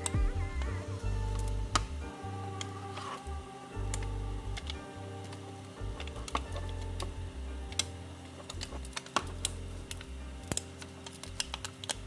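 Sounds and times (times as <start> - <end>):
soft background music: 0.0 - 12.0
small tools clicking and tapping: 7.7 - 12.0.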